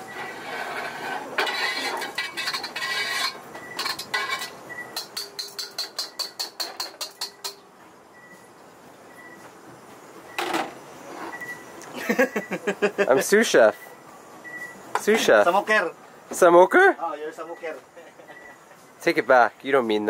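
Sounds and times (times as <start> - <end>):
metal tongs scraping wok: 0.0 - 7.6.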